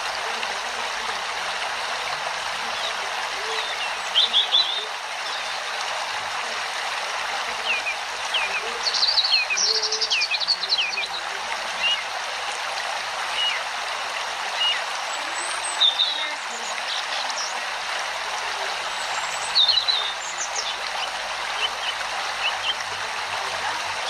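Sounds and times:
flowing stream rushing: 0.0s - 24.0s
small birds chirping: 2.6s - 5.8s, 7.5s - 12.0s, 14.5s - 17.6s, 18.9s - 23.0s.

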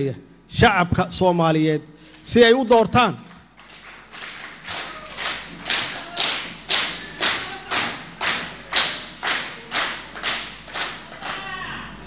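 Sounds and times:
people clapping in unison: 3.3s - 11.6s.

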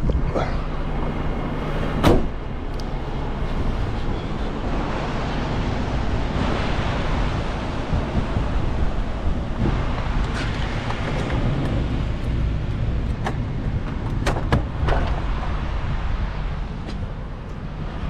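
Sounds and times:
diesel engine idling: 0.0s - 18.0s
steady rushing noise: 0.0s - 18.0s
sharp thud: 2.0s - 2.4s.

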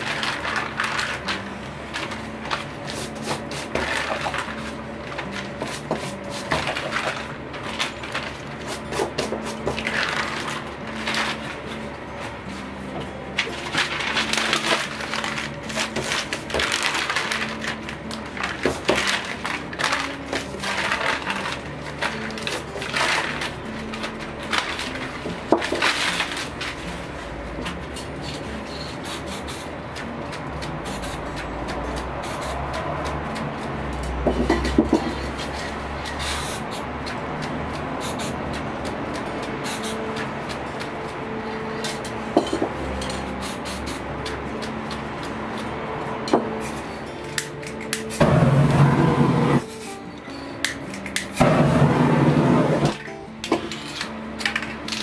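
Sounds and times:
spray paint cans hissing: 28.7s - 29.8s, 30.6s - 33.2s, 33.9s - 40.8s, 43.0s - 44.6s.

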